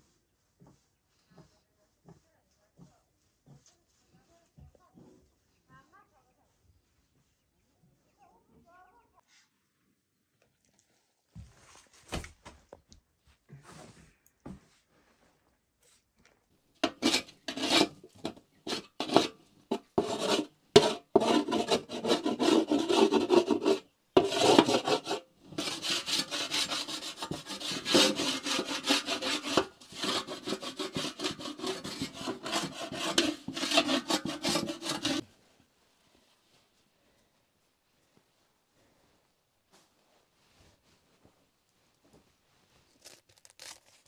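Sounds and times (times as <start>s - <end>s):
rubbing on hard surface: 16.8s - 35.3s.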